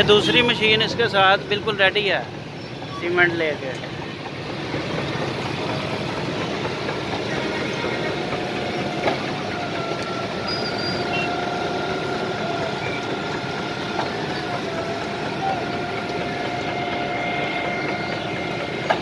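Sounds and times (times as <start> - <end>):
heavy diesel machinery running: 0.0 - 19.0.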